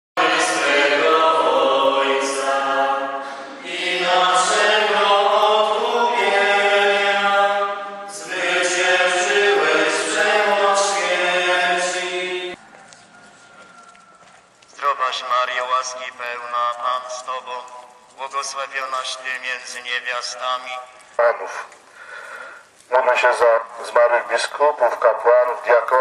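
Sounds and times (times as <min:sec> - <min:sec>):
group singing a hymn: 0:00.2 - 0:12.7.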